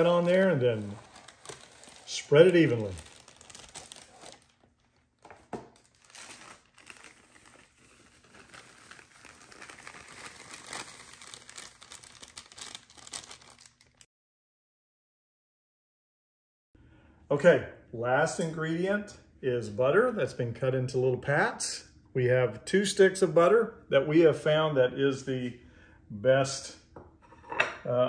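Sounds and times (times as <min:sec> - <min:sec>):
dry mix pouring: 0:00.0 - 0:14.0
plastic bag crinkling: 0:00.0 - 0:14.1.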